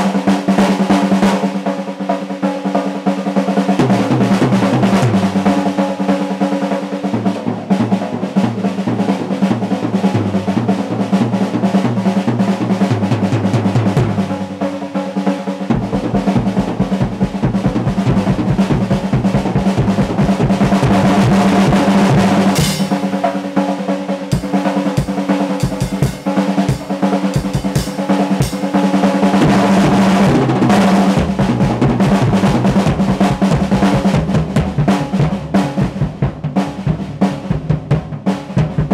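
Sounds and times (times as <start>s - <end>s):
drum solo rolls on snare and toms: 0.0s - 38.9s
bass drum kicks: 15.7s - 23.1s, 29.4s - 38.9s.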